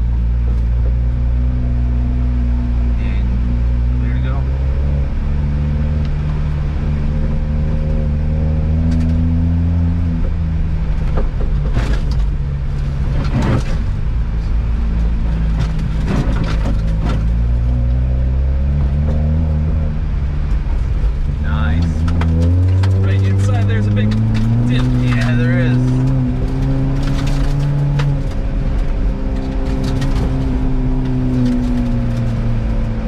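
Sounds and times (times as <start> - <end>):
car engine pulling: 0.0 - 33.0
tyres on gravel: 21.4 - 32.6.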